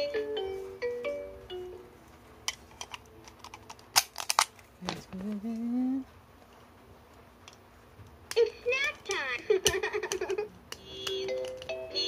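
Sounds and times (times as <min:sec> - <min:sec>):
person humming: 0:05.1 - 0:06.1
plastic toys clicking and tapping: 0:08.3 - 0:11.8.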